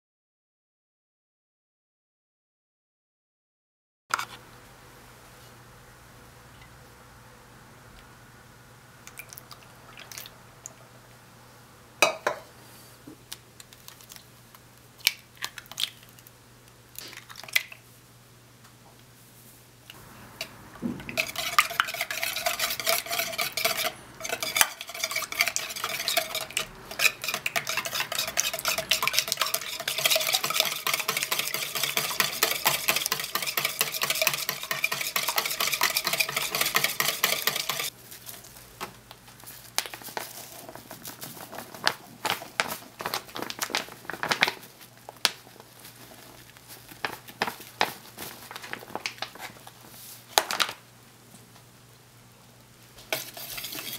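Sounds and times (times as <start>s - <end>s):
whisk rattling in plastic bowl: 21.1s - 37.9s, 53.1s - 53.9s.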